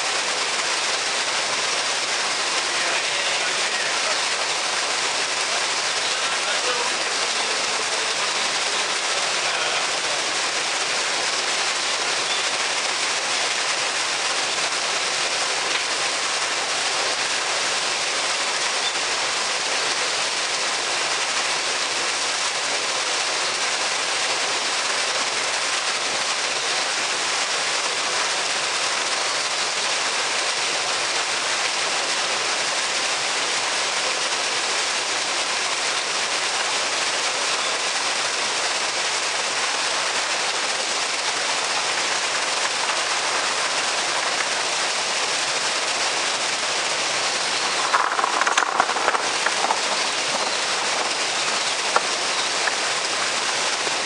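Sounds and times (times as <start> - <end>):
water splashing into pool: 38.4 - 54.0.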